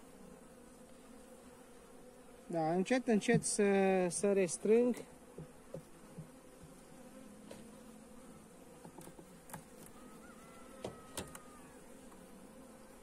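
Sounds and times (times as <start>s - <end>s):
honeybees humming: 0.0s - 13.0s
wooden hive frames knocking: 4.9s - 7.7s, 8.8s - 11.6s.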